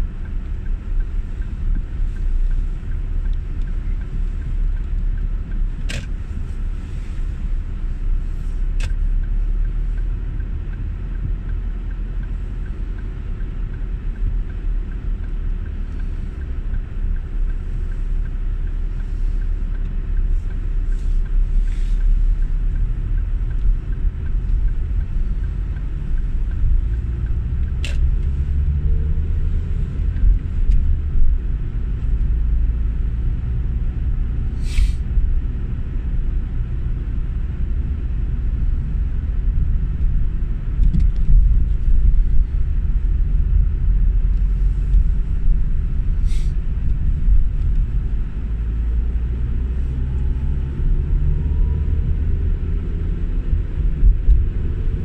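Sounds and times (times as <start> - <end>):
faint regular ticking: 0.0 - 28.9
car engine and road rumble: 0.0 - 55.0.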